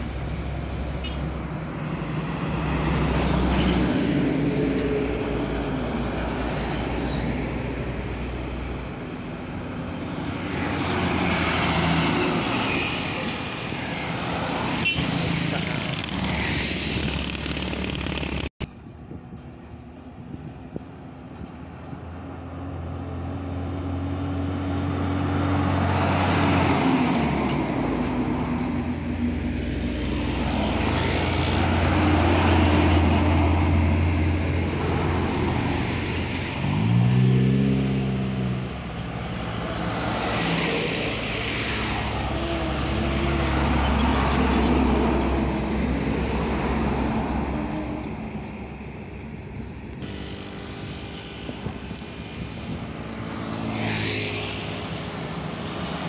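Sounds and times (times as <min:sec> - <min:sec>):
diesel trucks passing: 0:00.0 - 0:56.0
tyres on asphalt: 0:00.0 - 0:56.0
motorcycles passing: 0:10.0 - 0:18.5, 0:50.0 - 0:56.0.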